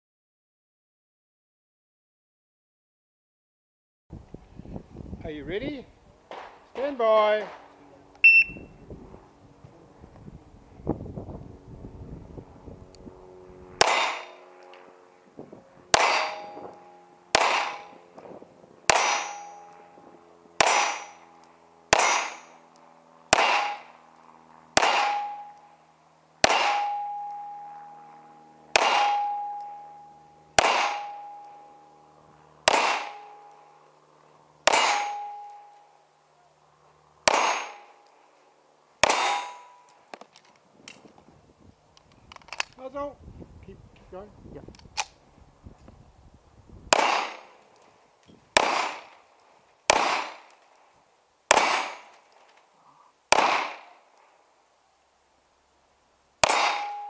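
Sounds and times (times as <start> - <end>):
pistol shots with ringing: 13.8 - 15.0, 15.9 - 22.7, 23.3 - 33.9, 34.6 - 36.0, 37.2 - 38.2, 39.0 - 40.1, 46.9 - 47.9, 48.5 - 49.3, 49.9 - 50.7, 51.5 - 52.4, 53.3 - 54.2, 56.4 - 57.0.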